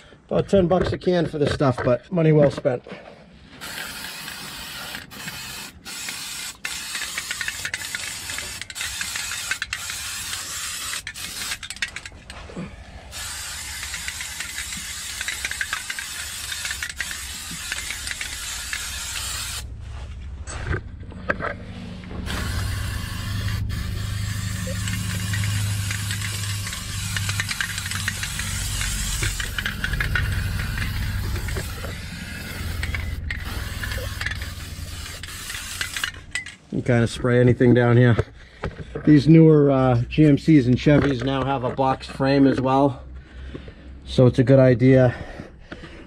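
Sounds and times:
aerosol can spraying hiss: 0:03.6 - 0:12.0, 0:13.1 - 0:19.7, 0:22.3 - 0:36.2
low steady hum: 0:11.6 - 0:38.6.

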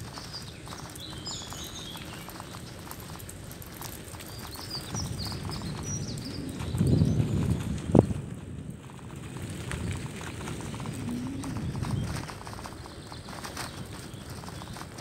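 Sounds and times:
small birds chirping: 0:00.0 - 0:08.2, 0:10.6 - 0:15.0
bicycle rolling on pavement: 0:00.0 - 0:15.0.

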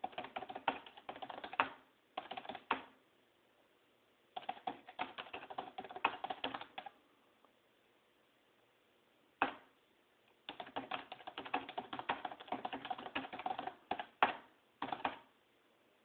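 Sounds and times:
fast typing on keyboard: 0:00.0 - 0:02.9, 0:04.4 - 0:07.0, 0:10.5 - 0:15.3.

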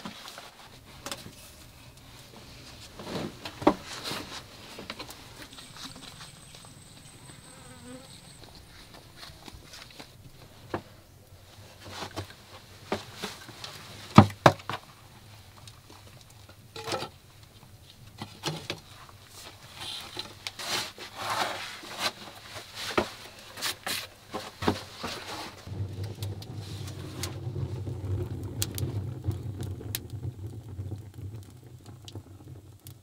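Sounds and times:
clothing brushing dirt walls: 0:20.6 - 0:25.7.

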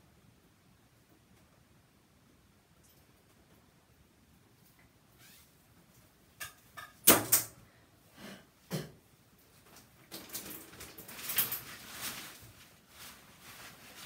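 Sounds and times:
rustling and scuffling: 0:09.5 - 0:14.0.

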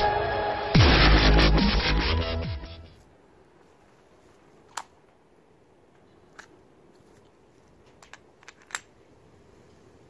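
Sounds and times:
air revolver parts clicking: 0:04.6 - 0:05.0, 0:06.3 - 0:06.6, 0:07.8 - 0:09.0.

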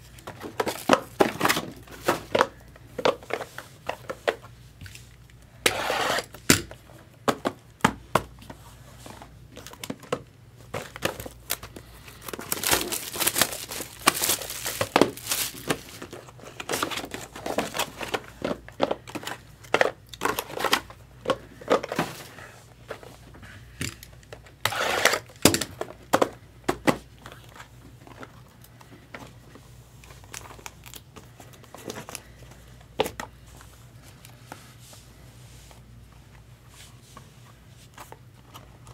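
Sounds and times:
plastic wrapping crinkling and tearing: 0:10.8 - 0:18.4, 0:30.0 - 0:32.3.

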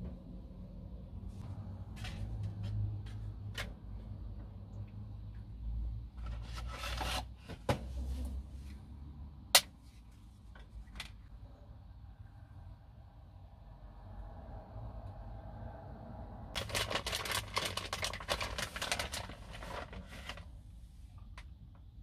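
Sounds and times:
dry pasta sheets rustling: 0:16.6 - 0:20.5.

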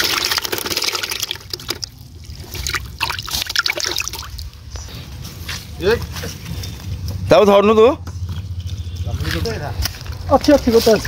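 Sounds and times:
water splashing and dripping: 0:00.0 - 0:04.8.

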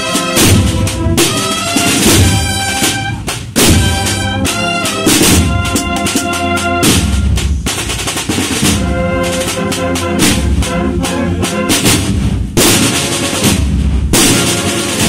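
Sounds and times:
cornets playing march melody: 0:00.0 - 0:15.0
snare drums rolling and beating: 0:00.0 - 0:15.0
deep bass drum: 0:02.0 - 0:04.4.

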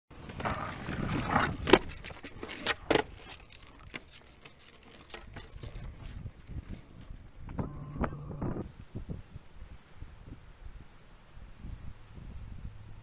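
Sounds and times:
skateboard wheels rolling on concrete: 0:00.1 - 0:13.0
skateboard clacking on ground: 0:00.2 - 0:08.2.

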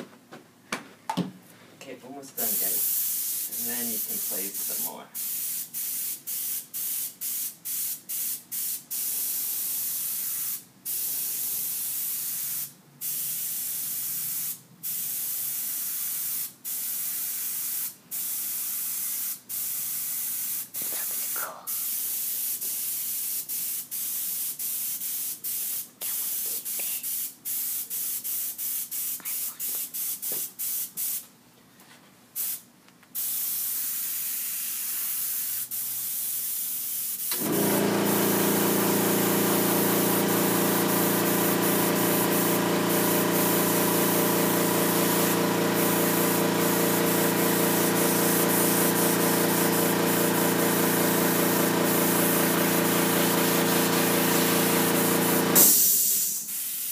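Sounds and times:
airbrush spraying hissing bursts: 0:02.4 - 0:31.2, 0:32.4 - 0:32.6, 0:33.2 - 0:56.9
air compressor motor hum: 0:37.3 - 0:56.4.

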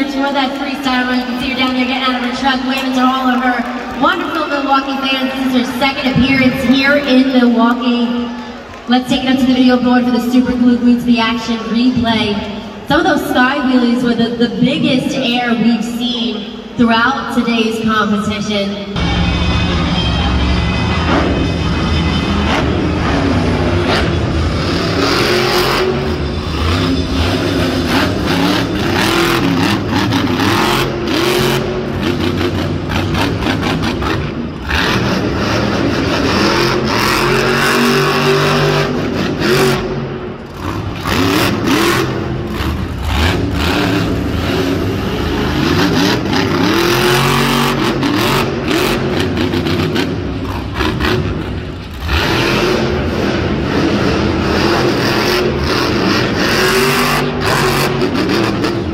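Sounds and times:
monster truck engine revving: 0:18.9 - 0:58.9.

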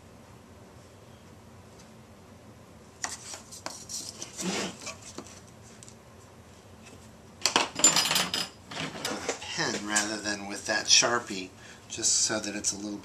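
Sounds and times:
scraping and rubbing: 0:03.1 - 0:05.4
ruler scraping on plexiglass: 0:03.8 - 0:05.2.

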